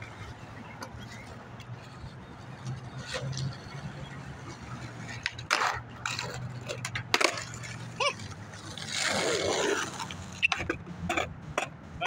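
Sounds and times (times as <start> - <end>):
skateboard on pavement: 0.0 - 11.7
skateboard clack: 0.0 - 11.8.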